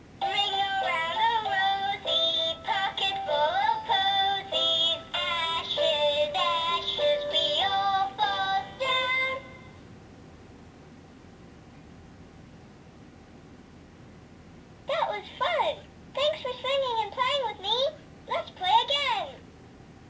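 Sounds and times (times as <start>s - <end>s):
toy singing high-pitched: 0.2s - 9.6s.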